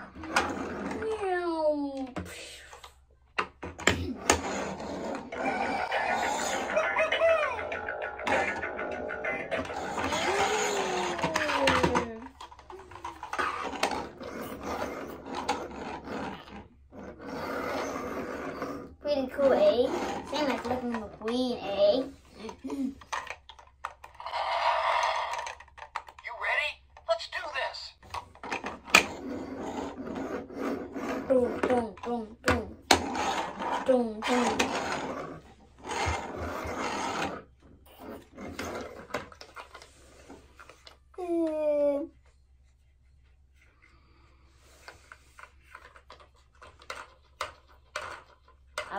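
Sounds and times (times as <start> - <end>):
toy car wheels scraping on wood: 0.0 - 1.3, 4.0 - 26.1, 28.4 - 40.9.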